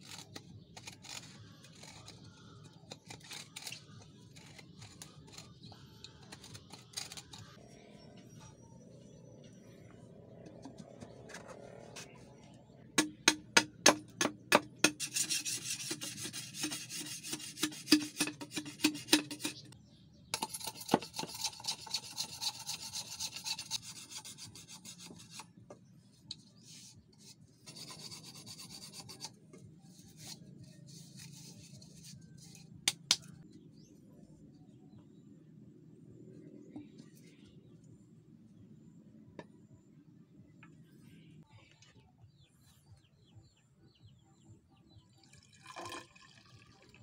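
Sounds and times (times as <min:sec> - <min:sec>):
knife scraping bamboo: 0:00.0 - 0:07.6, 0:13.0 - 0:19.8, 0:20.4 - 0:25.6, 0:26.3 - 0:33.4
knife chopping bamboo: 0:13.0 - 0:15.0.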